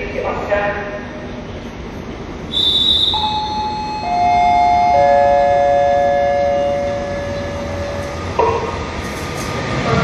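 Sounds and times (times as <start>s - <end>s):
brief high squeal: 2.5s - 3.4s
descending three-note chime: 3.2s - 8.3s.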